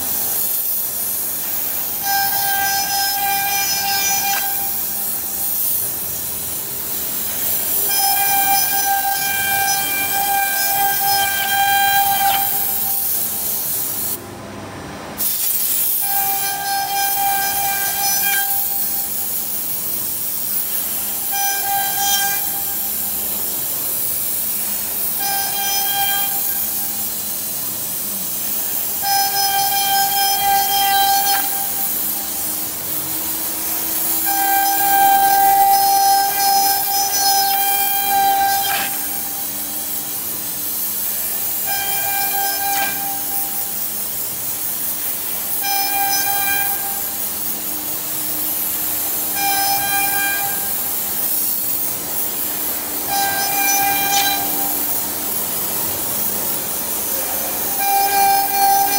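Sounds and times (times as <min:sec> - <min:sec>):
compressed air hissing: 0:00.0 - 0:14.2, 0:15.2 - 0:58.9
cnc router cutting wood: 0:07.5 - 0:13.0, 0:16.1 - 0:18.8, 0:28.7 - 0:40.5, 0:41.1 - 0:43.8, 0:51.9 - 0:58.9.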